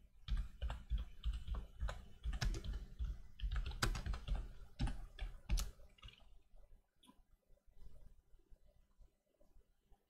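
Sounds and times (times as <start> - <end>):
typing on computer keyboard: 0.2 - 6.2.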